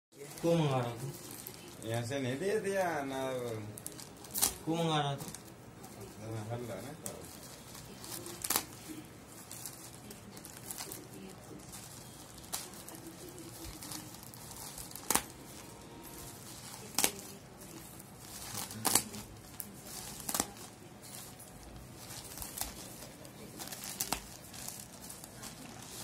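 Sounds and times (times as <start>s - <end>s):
plastic bag crinkling and tearing: 0.2s - 26.0s
sharp crackles: 6.5s - 26.0s.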